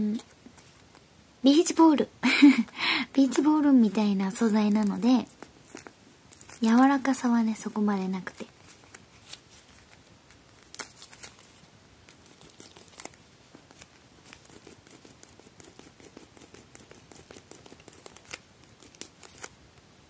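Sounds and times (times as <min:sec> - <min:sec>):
vinyl ice pack crinkling: 0:03.8 - 0:14.5, 0:17.6 - 0:19.6.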